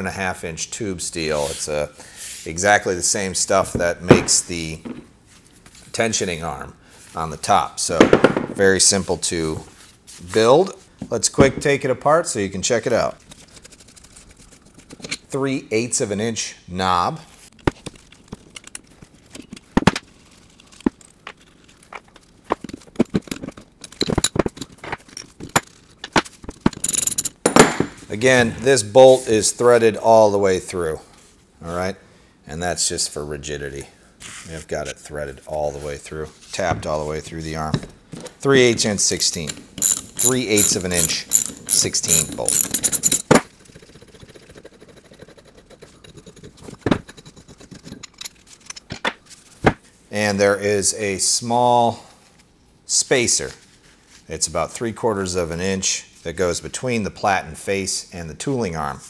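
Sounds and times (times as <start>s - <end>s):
metal parts scraping and rattling: 17.5s - 28.1s, 38.1s - 49.6s
metal knocks and clinks: 26.6s - 28.0s, 39.2s - 43.4s
socket ratchet clicking: 39.3s - 43.3s.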